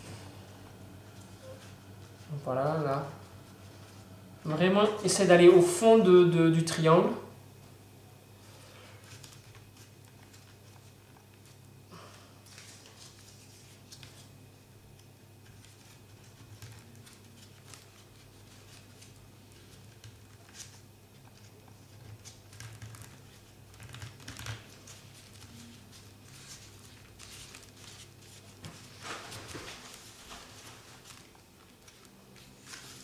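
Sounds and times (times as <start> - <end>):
steady low hum: 0.0 - 33.0
paper rustling and tapping: 14.9 - 33.0.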